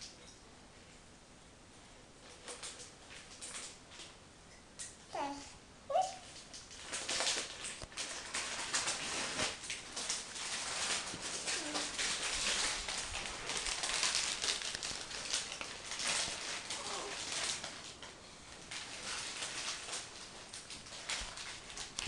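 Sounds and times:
fabric rustling and rubbing: 0:08.6 - 0:09.6.

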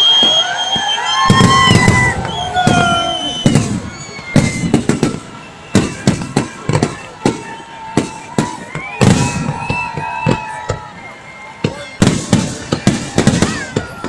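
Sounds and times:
fireworks bangs: 0:00.0 - 0:14.0
fireworks whistling: 0:00.0 - 0:14.0.

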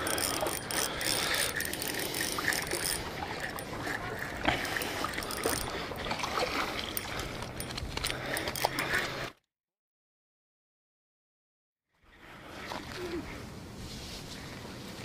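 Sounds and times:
handling clicks and rustling: 0:00.0 - 0:05.7, 0:06.9 - 0:09.4
water splashing: 0:02.1 - 0:07.4.

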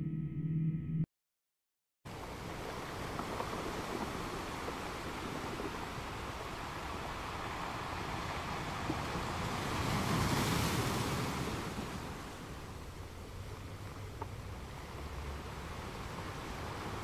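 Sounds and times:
ocean wave washing in: 0:02.1 - 0:13.0, 0:14.4 - 0:17.0.

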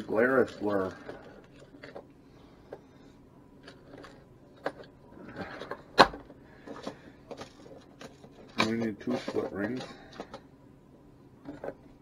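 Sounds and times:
plastic boxes clicking and rattling: 0:03.6 - 0:10.4.

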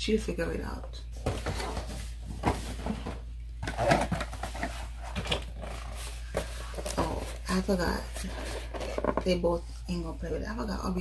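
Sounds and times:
toy boxes rustling and knocking: 0:01.2 - 0:09.3.

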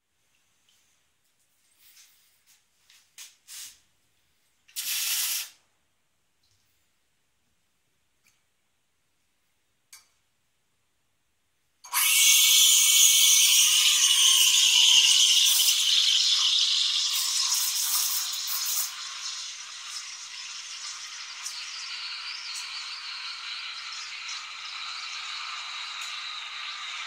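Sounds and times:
steam wand hissing: 0:04.8 - 0:05.6, 0:11.9 - 0:20.7.

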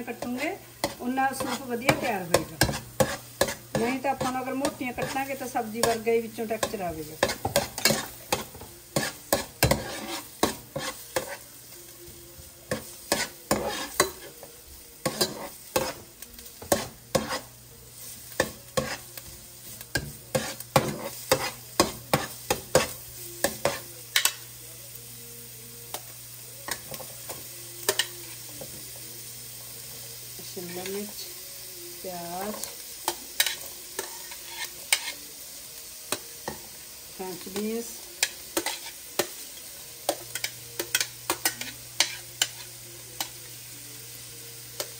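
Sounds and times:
garlic sizzling in oil: 0:00.0 - 0:44.9
metal spoon scraping a pot: 0:00.2 - 0:06.0, 0:07.2 - 0:11.5, 0:13.1 - 0:14.3, 0:16.6 - 0:17.5, 0:20.3 - 0:22.9.

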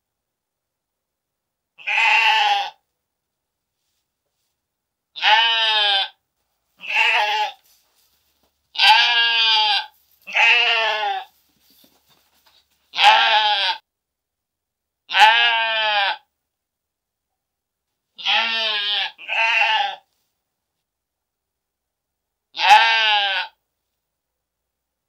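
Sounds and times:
sheep bleating: 0:01.8 - 0:02.8, 0:05.2 - 0:06.2, 0:06.8 - 0:07.6, 0:08.7 - 0:11.3, 0:12.9 - 0:13.8, 0:15.1 - 0:16.3, 0:18.2 - 0:20.1, 0:22.6 - 0:23.6.

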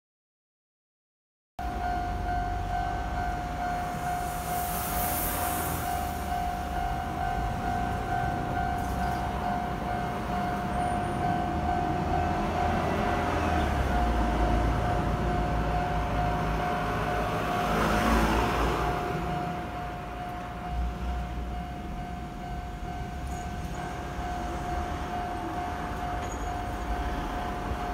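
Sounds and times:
level crossing warning bell: 0:01.6 - 0:27.9
broad rushing noise: 0:03.4 - 0:08.8.

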